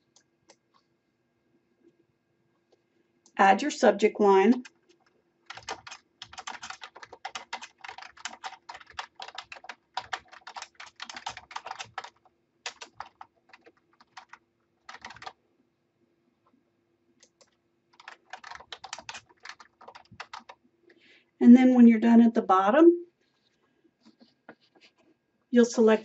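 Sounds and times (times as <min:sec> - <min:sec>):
computer keyboard typing: 0:04.4 - 0:15.4, 0:17.2 - 0:20.6.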